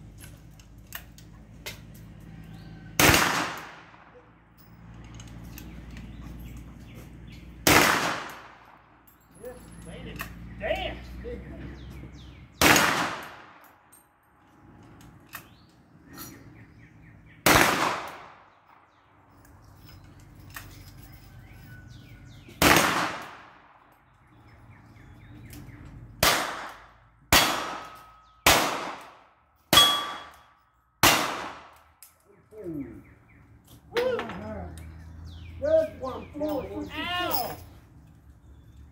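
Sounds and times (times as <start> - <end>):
gunshots: 3.0 - 4.2, 7.6 - 8.7, 12.6 - 13.6, 17.4 - 18.5, 22.6 - 23.7, 26.2 - 30.4, 31.0 - 31.8
faint ring of steel targets: 26.2 - 31.8.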